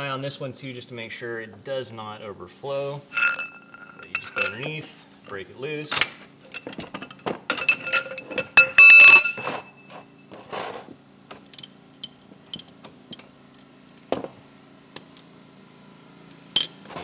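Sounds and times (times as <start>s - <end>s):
loud metallic clatter: 3.1s - 4.7s
wrench clinking on metal: 3.1s - 4.8s, 5.9s - 9.9s, 11.5s - 13.3s, 16.5s - 16.9s.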